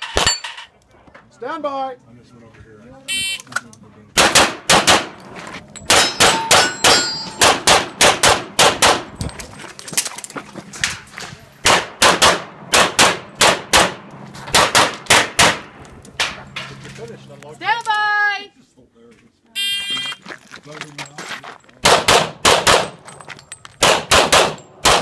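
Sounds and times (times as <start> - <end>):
rapid pistol fire: 4.2 - 5.2, 7.4 - 9.1, 11.6 - 15.7, 21.8 - 23.0, 23.8 - 25.0
steel targets ringing: 5.7 - 7.7.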